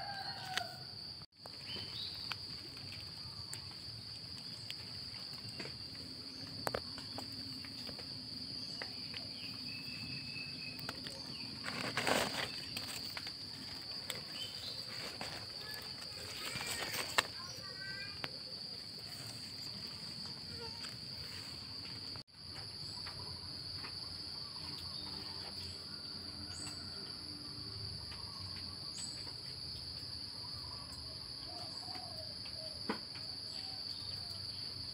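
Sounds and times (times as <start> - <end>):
insect chorus trilling: 0.0 - 34.9.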